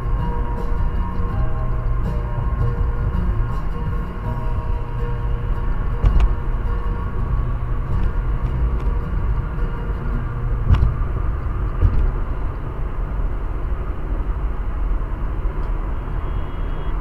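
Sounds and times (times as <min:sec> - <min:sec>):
road and tyre rumble: 0:00.0 - 0:17.0
sharp knocks: 0:10.6 - 0:11.0, 0:11.8 - 0:12.2.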